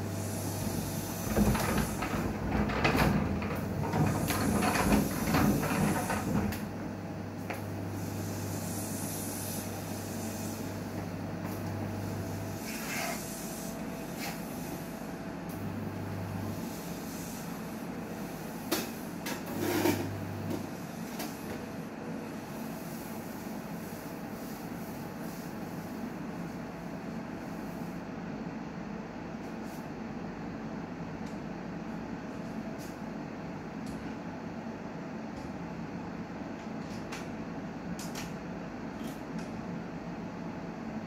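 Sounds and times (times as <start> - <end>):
hissing and rattling: 0.5 - 6.6.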